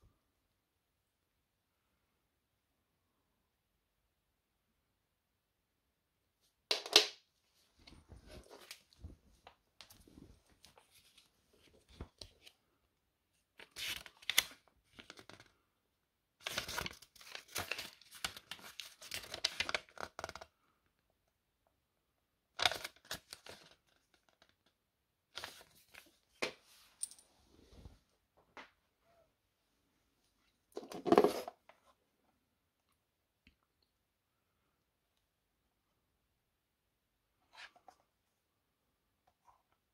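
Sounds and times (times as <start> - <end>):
paper pages rustling: 7.8 - 12.6, 13.6 - 15.6, 16.4 - 20.5, 22.6 - 24.5, 25.4 - 26.2.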